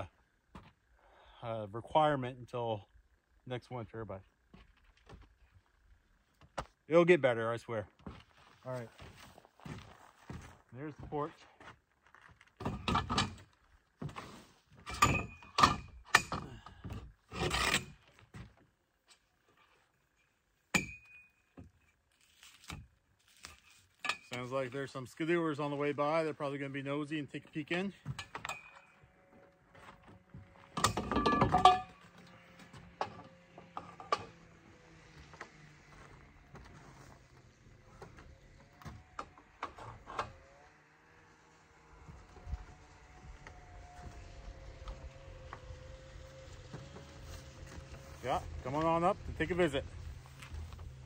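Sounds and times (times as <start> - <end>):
faint snowmobile engine hum: 0.0 - 51.0
metal poles knocking and clanking: 14.9 - 16.6, 30.8 - 32.0.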